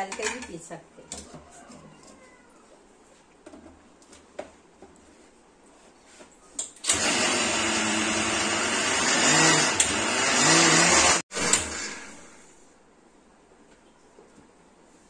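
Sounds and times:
mixer grinder motor grinding: 6.9s - 12.4s.

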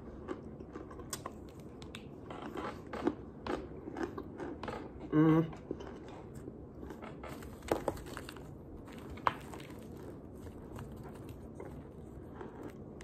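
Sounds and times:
starch chunks squeaking and crunching: 5.8s - 13.0s.

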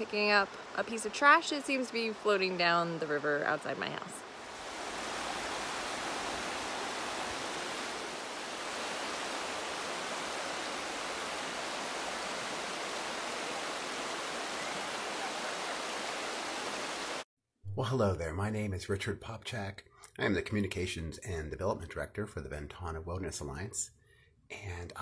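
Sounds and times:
river water rushing over rocks: 4.4s - 17.2s.

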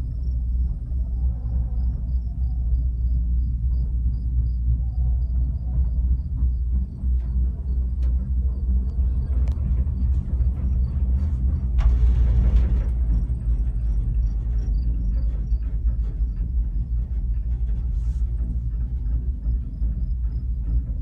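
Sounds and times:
gondola cabin rumble: 0.0s - 21.0s
light clicks and rattles: 6.8s - 21.0s.

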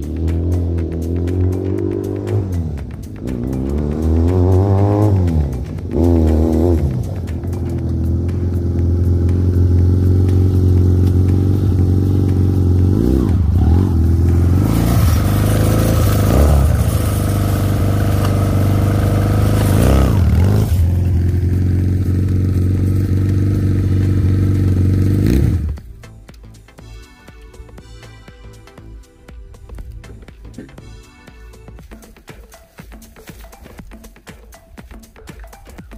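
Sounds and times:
quad bike engine revving: 0.0s - 25.9s.

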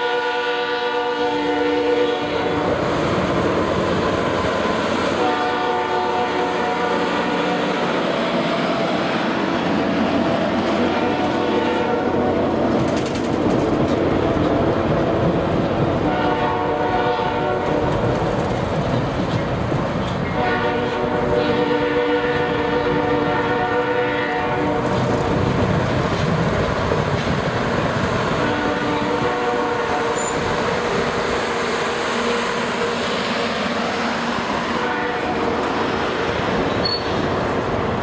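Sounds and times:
locomotive horn: 0.0s - 2.8s, 5.1s - 7.9s, 10.7s - 12.4s, 16.0s - 18.0s, 20.3s - 25.1s, 28.4s - 30.6s, 34.6s - 35.7s
train wheels on rails: 1.4s - 38.0s.

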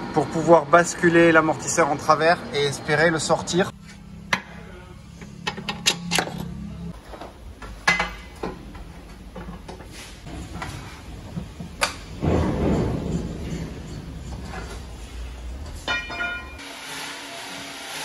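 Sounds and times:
metallic clicks and knocks: 5.4s - 6.5s.

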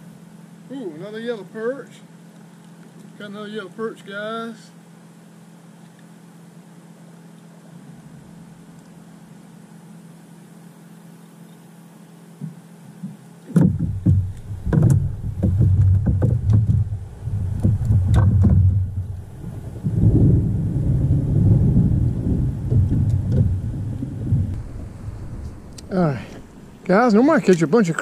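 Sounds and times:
thunder rumbling: 13.9s - 27.6s.

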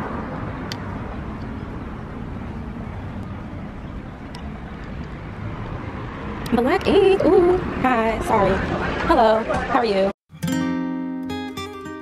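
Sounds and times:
distant traffic rumble: 0.0s - 10.2s.

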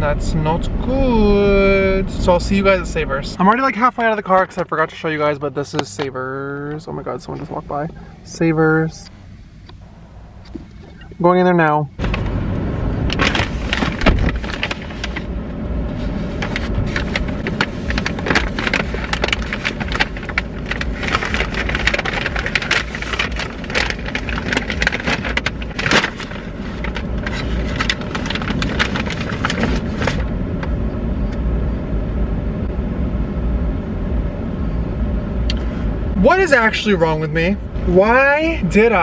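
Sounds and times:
low car rumble: 0.0s - 39.0s
paper bag crinkling: 13.1s - 15.3s, 15.9s - 30.3s.

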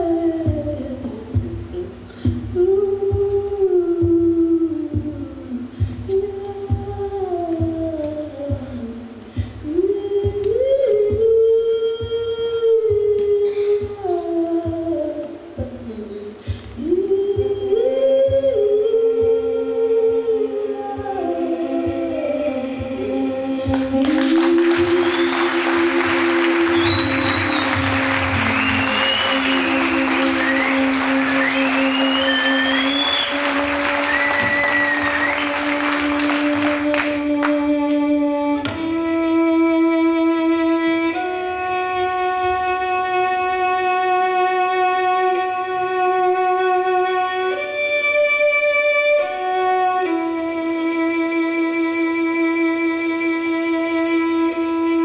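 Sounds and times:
violin long held notes: 18.6s - 55.0s.

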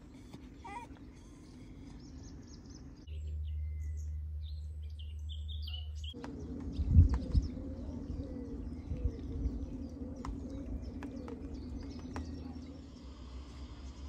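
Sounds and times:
pigeon cooing: 0.0s - 2.2s, 7.1s - 12.9s
bird chirps: 0.0s - 14.0s
low hum: 0.0s - 14.0s.

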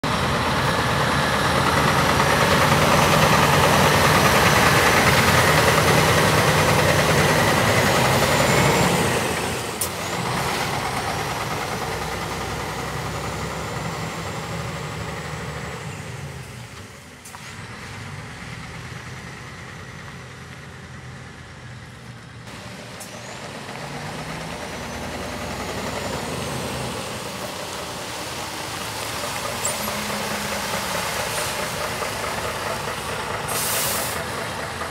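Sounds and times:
diesel truck engine driving: 0.0s - 34.9s.

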